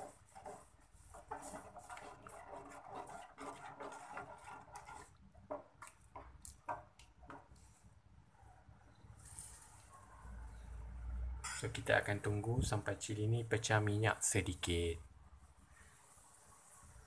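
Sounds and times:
metal ladle scraping a pot: 0:00.0 - 0:05.7.

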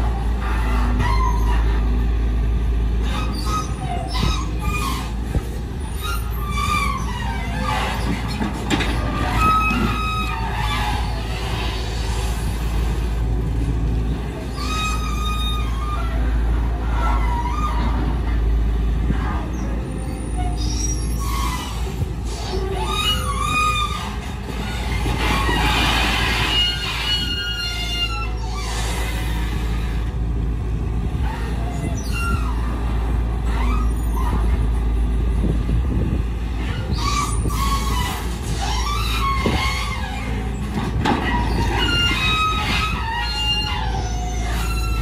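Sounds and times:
excavator diesel engine running: 0:00.0 - 0:45.0
hydraulic whines: 0:19.3 - 0:30.2, 0:31.1 - 0:45.0.

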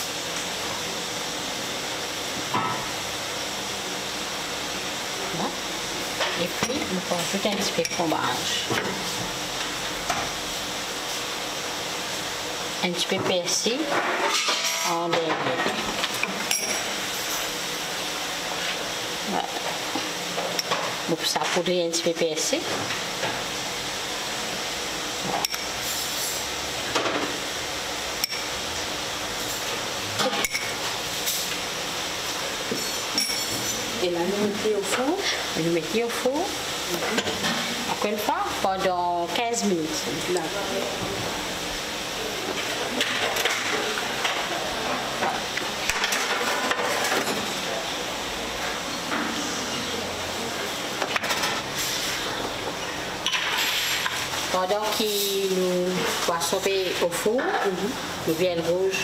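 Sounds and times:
food sizzling in a pan: 0:15.8 - 0:21.2, 0:22.4 - 0:58.3.

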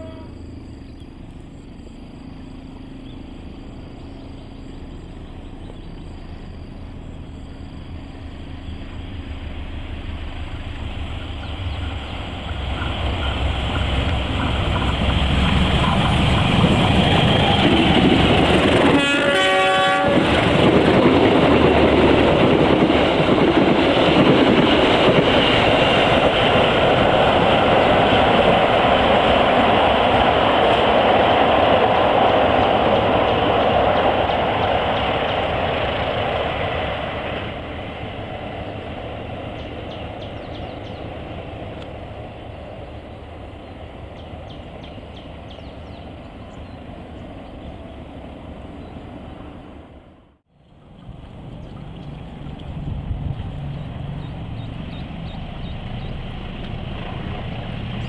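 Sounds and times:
train horn blast: 0:00.0 - 0:00.5, 0:18.8 - 0:20.4
diesel locomotive approaching: 0:00.0 - 0:58.0
train wheels on rails: 0:02.6 - 0:50.4, 0:52.4 - 0:58.0.

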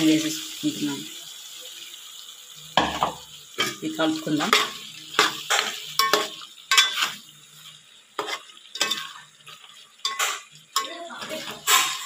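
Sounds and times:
spoon scraping metal pot: 0:04.5 - 0:07.2, 0:08.2 - 0:12.0.

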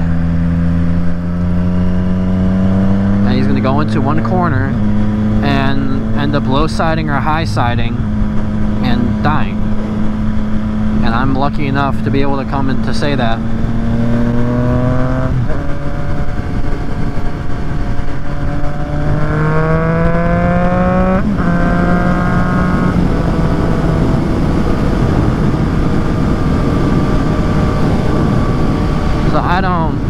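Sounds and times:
motorcycle engine revving: 0:00.0 - 0:30.0
wind rushing: 0:13.2 - 0:30.0.

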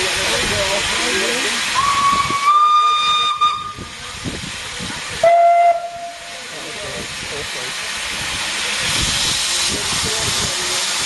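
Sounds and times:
steam hissing: 0:00.0 - 0:11.0
steam locomotive whistle: 0:01.8 - 0:03.9, 0:05.2 - 0:06.3.

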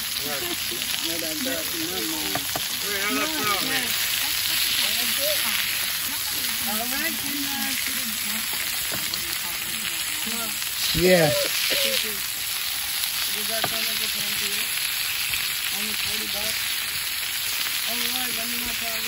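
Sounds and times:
faint voices: 0:00.0 - 0:14.8
patties sizzling on a griddle: 0:00.0 - 0:19.0.

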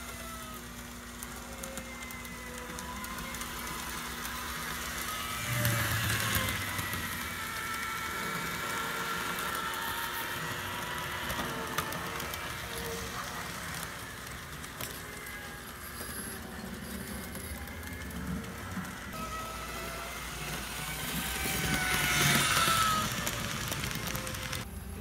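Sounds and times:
model train motor whir: 0:00.0 - 0:25.0.

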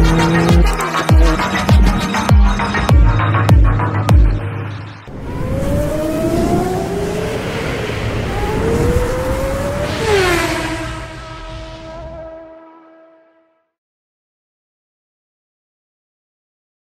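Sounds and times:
race car engine accelerating: 0:00.0 - 0:03.8, 0:05.1 - 0:12.8
car passing whoosh: 0:05.1 - 0:13.2.

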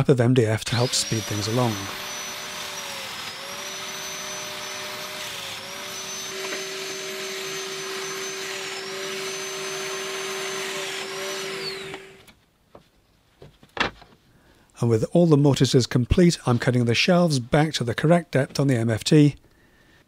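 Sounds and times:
dust extractor running: 0:00.8 - 0:12.3
joiner motor whine: 0:00.8 - 0:12.3.

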